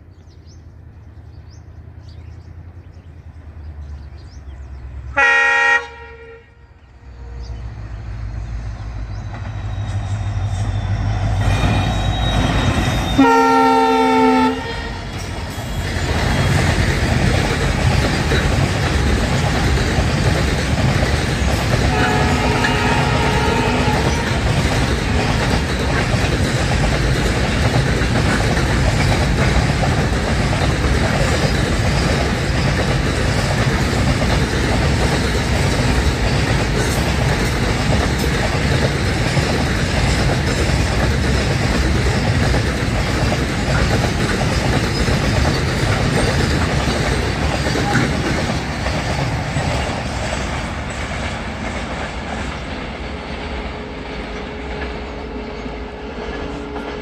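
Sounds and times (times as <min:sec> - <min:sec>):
train wheels rolling on rails: 0:07.0 - 0:57.0.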